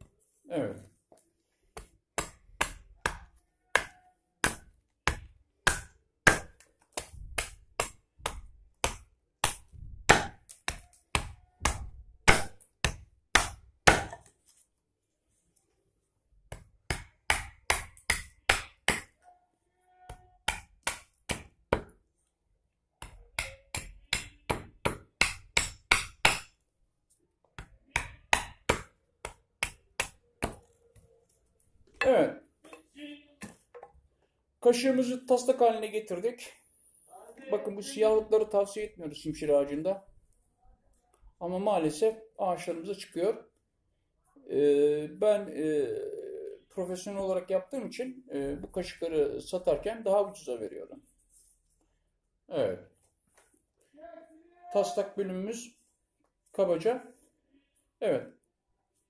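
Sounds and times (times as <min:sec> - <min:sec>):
hatchet chopping wood: 0:01.8 - 0:14.3, 0:16.5 - 0:19.2, 0:20.4 - 0:22.0, 0:23.0 - 0:26.5, 0:27.6 - 0:30.6.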